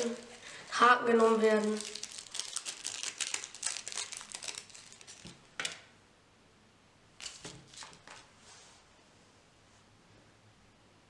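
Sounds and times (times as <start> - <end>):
plastic packet crinkling: 0.0 - 5.8, 7.2 - 8.2.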